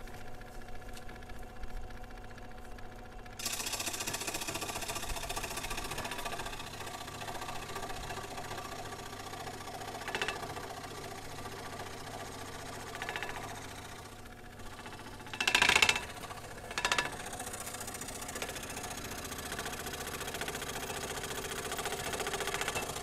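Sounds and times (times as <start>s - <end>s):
scroll saw cutting wood: 3.4s - 23.0s.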